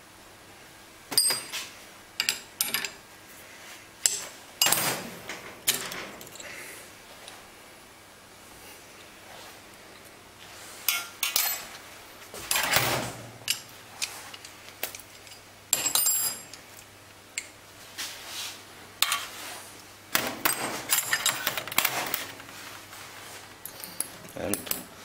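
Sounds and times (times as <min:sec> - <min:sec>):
metal parts and tools clinking: 0:01.1 - 0:01.6, 0:02.2 - 0:03.0, 0:04.0 - 0:05.0, 0:10.9 - 0:11.8, 0:12.4 - 0:12.9, 0:13.5 - 0:16.6, 0:20.4 - 0:22.4
metal parts rattling: 0:12.4 - 0:12.9, 0:20.4 - 0:22.4.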